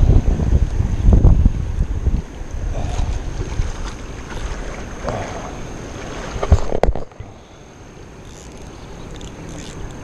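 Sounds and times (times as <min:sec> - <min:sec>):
wind buffeting microphone: 0:00.0 - 0:07.3
shallow river hissing: 0:00.0 - 0:10.0.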